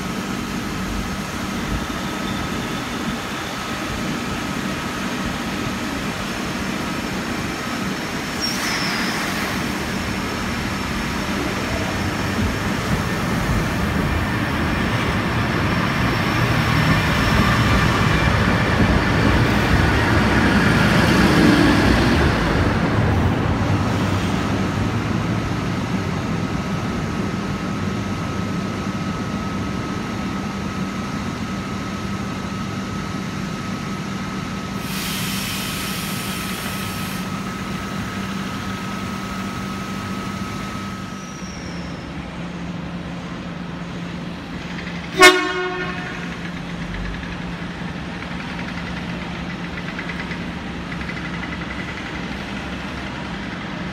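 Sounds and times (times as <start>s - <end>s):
diesel railcar rumbling: 0.0s - 53.9s
loud train horn tone: 45.1s - 46.4s.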